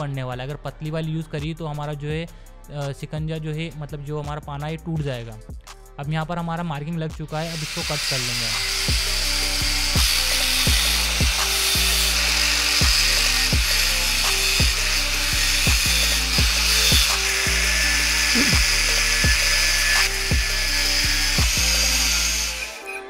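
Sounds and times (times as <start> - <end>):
music with a steady beat: 0.0 - 22.8
angle grinder cutting metal: 7.3 - 23.0.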